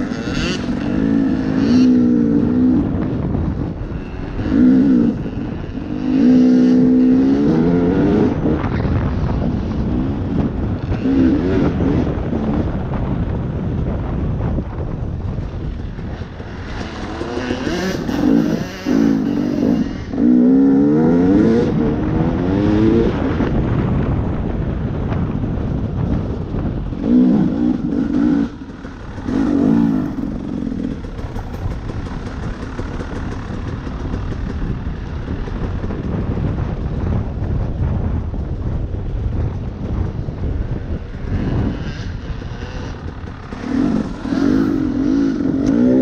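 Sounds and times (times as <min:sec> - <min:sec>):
off-road vehicle engine revving: 0:00.0 - 0:12.8, 0:16.2 - 0:23.5, 0:26.9 - 0:36.2, 0:40.9 - 0:46.0
wind rush: 0:00.0 - 0:46.0.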